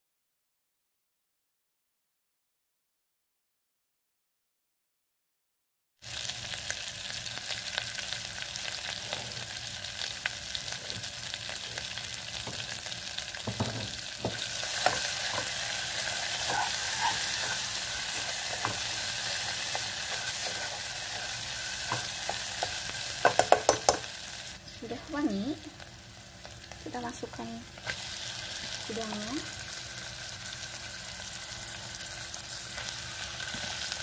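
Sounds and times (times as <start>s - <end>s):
spice paste sizzling in hot oil: 6.0s - 34.0s
spatula scraping and tapping pan: 13.5s - 24.1s.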